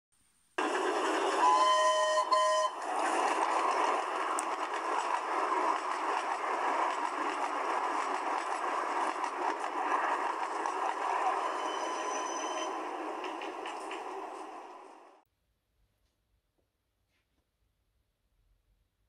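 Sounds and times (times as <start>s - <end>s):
train running: 0.6s - 15.2s
steam whistle blasts: 1.4s - 2.9s, 11.4s - 12.8s.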